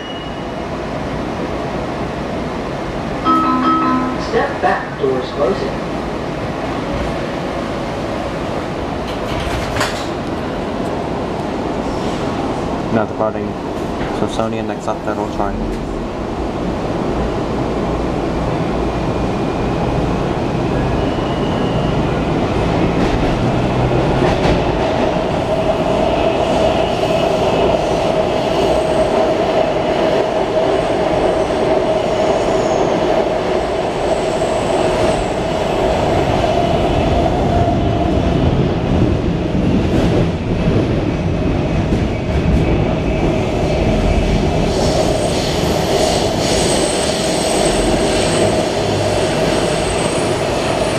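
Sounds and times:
train whine: 3.0s - 5.8s, 18.2s - 50.9s
train wheels rumbling: 4.1s - 50.9s.

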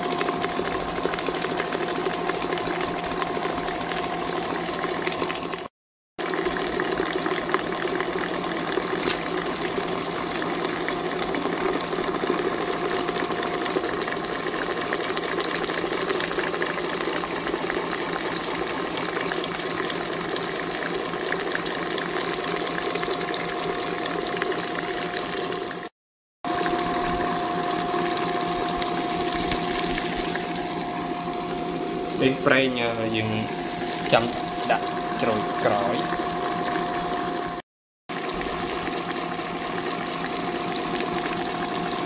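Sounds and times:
stand mixer whisk beating batter: 0.0s - 25.9s, 26.5s - 42.0s
motor whine: 26.5s - 37.6s.

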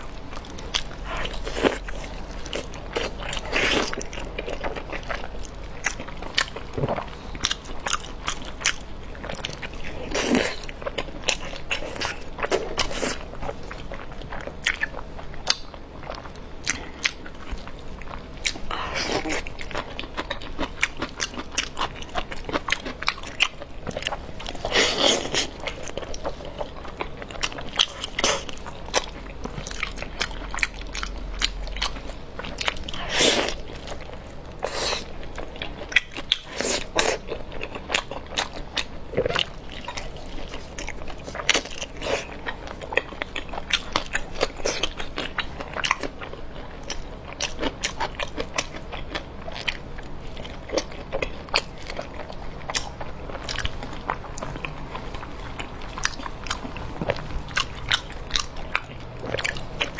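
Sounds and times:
person biting and chewing: 18.4s - 49.8s.

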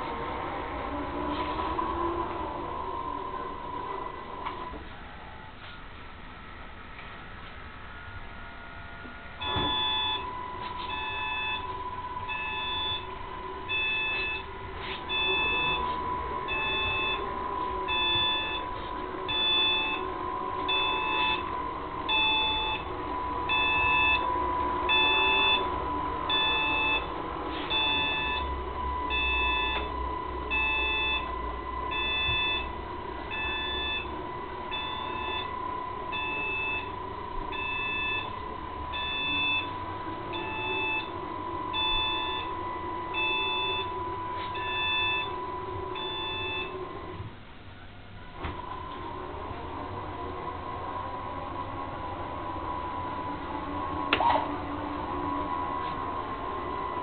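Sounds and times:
model truck drive whine: 0.0s - 57.0s
constant electronic tone: 7.9s - 47.3s
electronic warning beeps: 9.4s - 21.5s, 22.1s - 22.9s, 23.5s - 24.3s, 24.9s - 46.9s.

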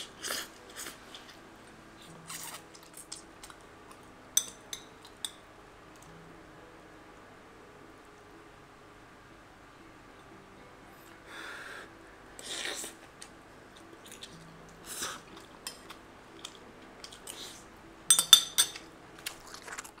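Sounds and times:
spoon clinking against plate: 4.4s - 5.4s, 18.1s - 18.9s.

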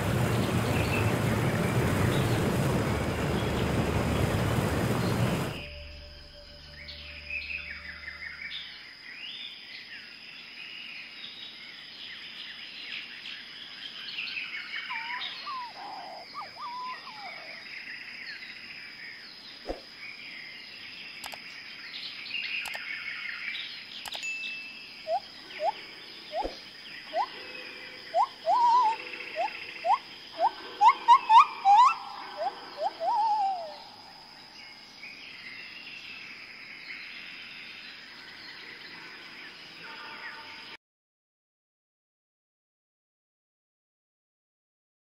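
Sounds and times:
small birds chirping: 10.4s - 38.6s
rising whistled bird calls: 14.2s - 17.7s, 24.4s - 27.4s, 28.0s - 34.7s.

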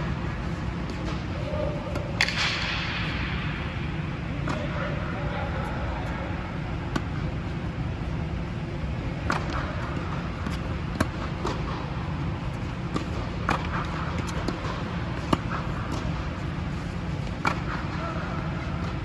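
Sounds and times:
low hum: 0.0s - 19.0s
tennis ball struck by rackets: 1.9s - 3.0s, 9.2s - 11.9s, 12.5s - 17.9s
tennis ball bouncing: 6.8s - 7.2s, 9.2s - 17.9s.

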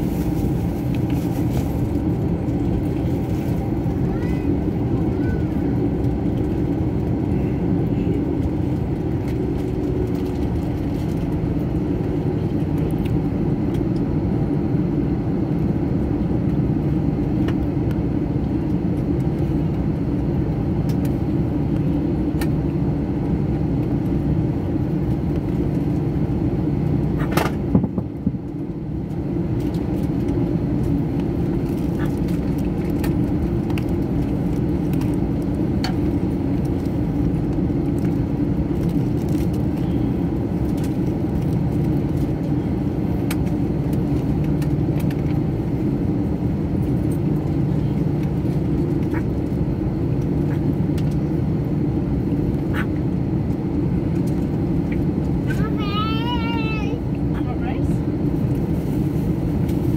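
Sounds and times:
airliner engine drone in cabin: 0.0s - 59.9s.

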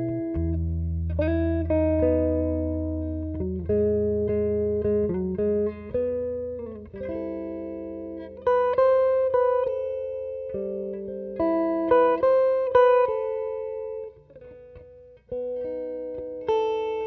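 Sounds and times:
clean electric guitar playing: 0.0s - 17.0s.

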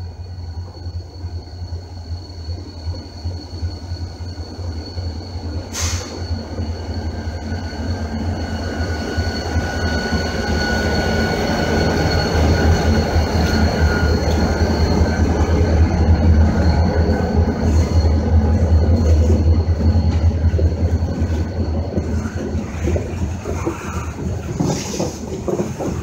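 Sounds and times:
thin high whine: 0.0s - 24.2s
diesel locomotive engine rumble: 0.0s - 26.0s
brief hiss: 5.7s - 6.2s.

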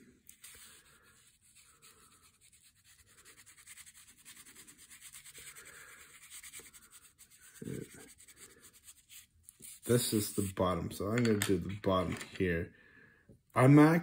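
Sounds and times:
pencil scratching on paper: 0.3s - 10.7s.

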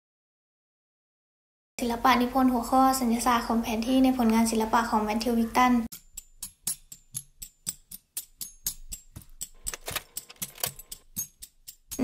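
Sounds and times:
sharp ticking sound effect: 5.9s - 12.0s.

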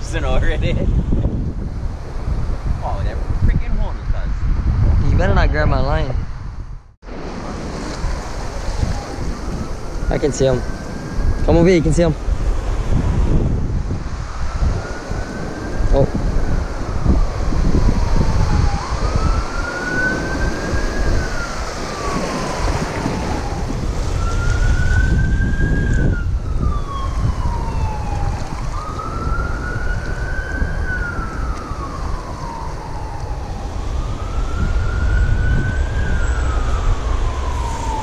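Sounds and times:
wind rumbling on microphone: 0.0s - 38.0s
siren wailing: 8.4s - 12.3s, 12.9s - 38.0s.

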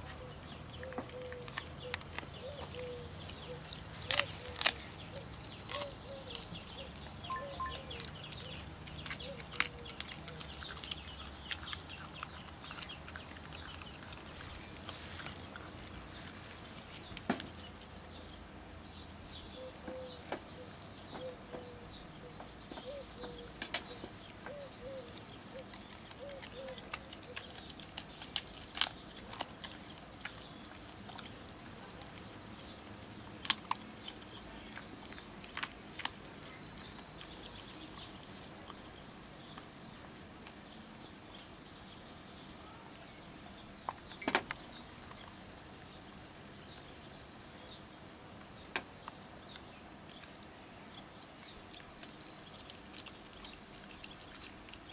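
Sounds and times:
dog gnawing bone: 0.0s - 18.0s, 23.4s - 38.8s, 51.0s - 54.9s.

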